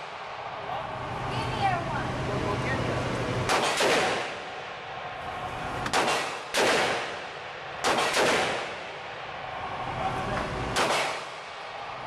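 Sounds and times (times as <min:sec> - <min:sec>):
gunshots with echo: 0:03.4 - 0:04.7, 0:05.8 - 0:09.2, 0:10.7 - 0:11.9.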